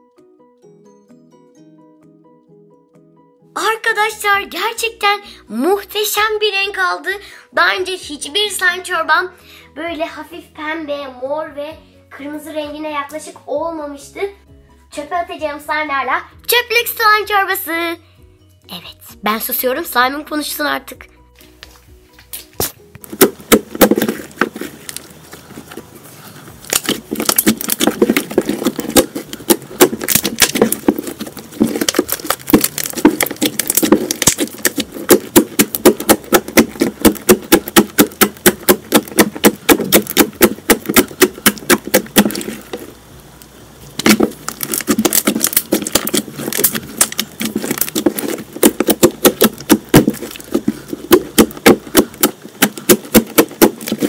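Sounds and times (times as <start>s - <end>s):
slime popping wetly: 26.6s - 42.9s, 44.0s - 54.0s.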